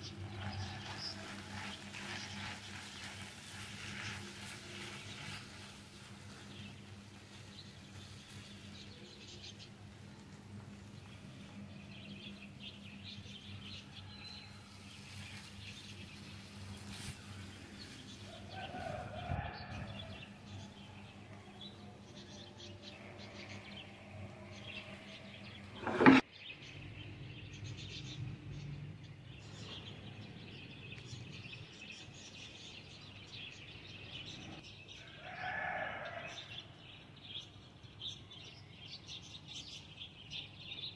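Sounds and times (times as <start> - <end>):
spatula scraping frying pan: 0.4 - 5.8, 25.8 - 26.2.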